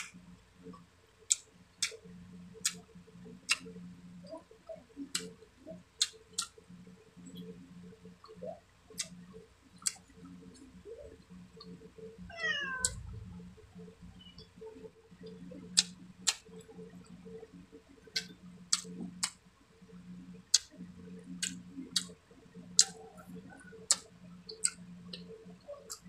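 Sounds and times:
low steady hum: 0.0s - 26.0s
wet mouth clicks while chewing: 2.6s - 2.8s, 8.2s - 10.1s, 15.8s - 16.6s, 18.1s - 19.4s, 20.5s - 20.8s, 21.4s - 22.2s, 22.8s - 23.0s, 23.9s - 26.0s.

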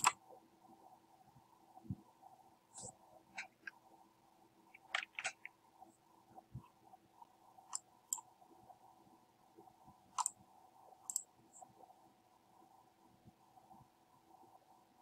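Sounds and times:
faint steady hum: 0.0s - 15.0s
keyboard and mouse clicking: 4.8s - 5.6s, 10.2s - 10.4s, 11.1s - 11.3s.

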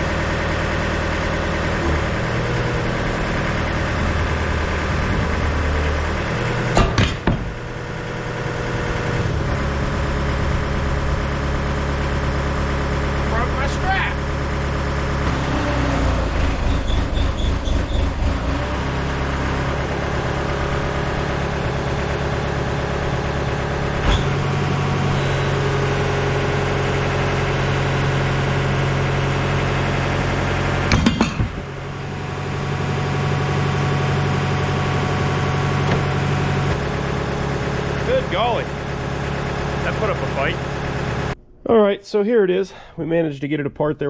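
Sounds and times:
diesel engine under load: 0.0s - 44.0s.

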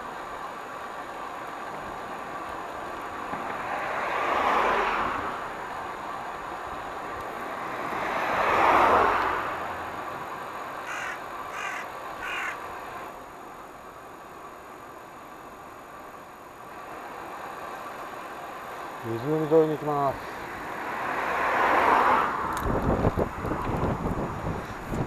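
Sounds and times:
cars passing: 0.0s - 25.0s
wind and road noise: 0.0s - 25.0s
crow cawing: 10.8s - 12.6s.

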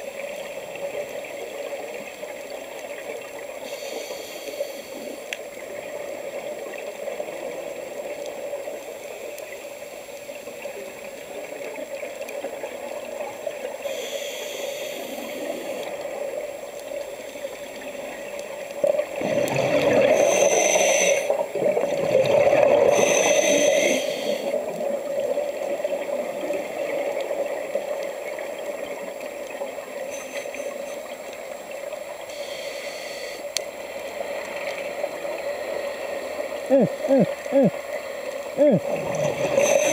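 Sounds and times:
steady watery hiss: 0.0s - 39.9s
scuba diver breathing through regulator: 3.6s - 5.3s, 13.8s - 15.9s, 19.2s - 21.4s, 22.6s - 24.6s, 32.3s - 33.6s, 38.6s - 39.9s
bubbling exhalation: 36.6s - 37.8s, 38.6s - 39.9s.

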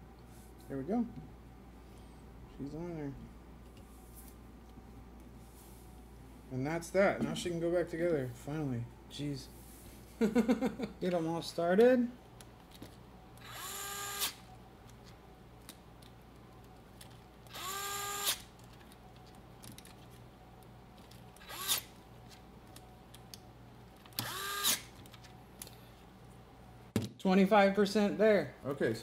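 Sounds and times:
electric screwdriver whining: 13.4s - 14.4s, 17.5s - 18.5s, 21.4s - 21.9s, 24.1s - 24.9s.

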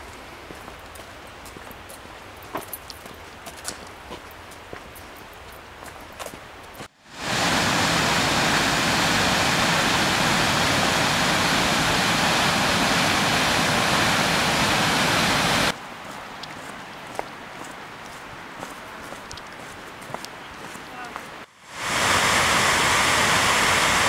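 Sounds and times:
light footsteps: 0.0s - 6.9s, 16.0s - 21.5s
trail ambience: 0.0s - 24.0s
waterfall rushing: 7.0s - 15.8s, 21.5s - 24.0s.

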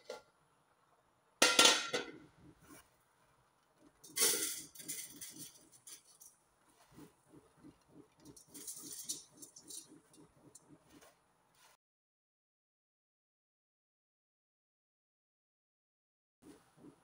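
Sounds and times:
rhythmic rubbing strokes: 4.0s - 11.8s.

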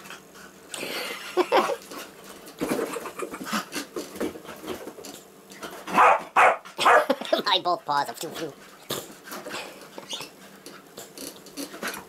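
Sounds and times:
dog barking: 5.9s - 7.1s.

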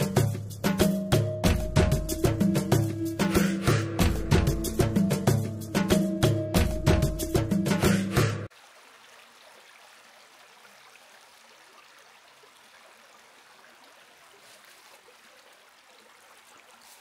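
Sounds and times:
river water flowing: 8.4s - 17.0s.

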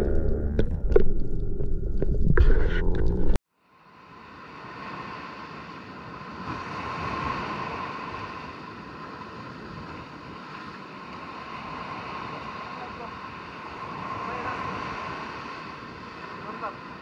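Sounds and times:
small waves washing on beach: 3.6s - 17.0s.

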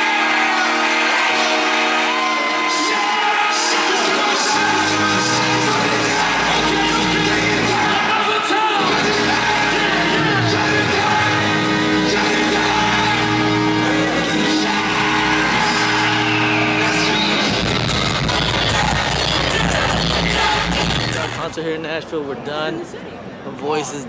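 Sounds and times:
person singing over chords: 0.0s - 21.2s
live concert music echoing: 0.0s - 22.0s
heavy bass: 3.0s - 8.2s, 8.8s - 21.5s.

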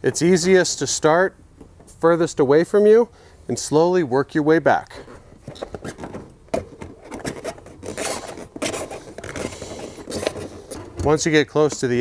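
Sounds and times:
foam and rubber scraping rim: 5.6s - 12.0s.

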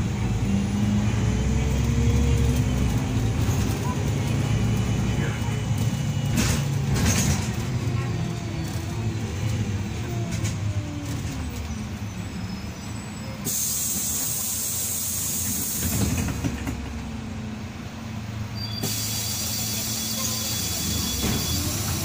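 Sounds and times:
bus diesel engine running: 0.0s - 22.0s
loud air hiss: 13.4s - 16.2s, 18.8s - 22.0s.

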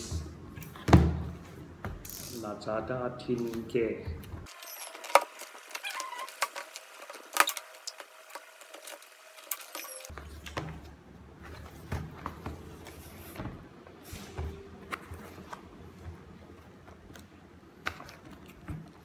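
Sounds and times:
cardboard rubbing: 4.5s - 9.2s
scratching at packing tape: 4.5s - 10.0s.

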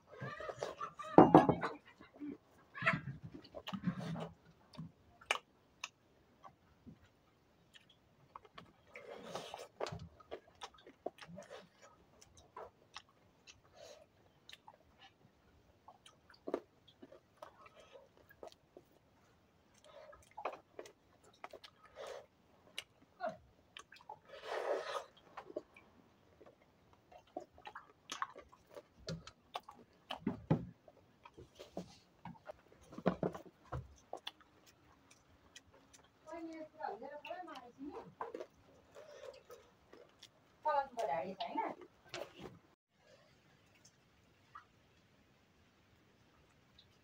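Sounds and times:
person chewing and biting food: 7.7s - 15.2s, 15.8s - 25.8s, 26.4s - 36.2s, 38.0s - 40.5s.

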